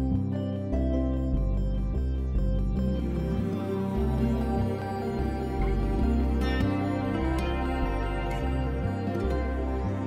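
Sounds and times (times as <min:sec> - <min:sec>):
calm new-age music: 0:00.0 - 0:10.0.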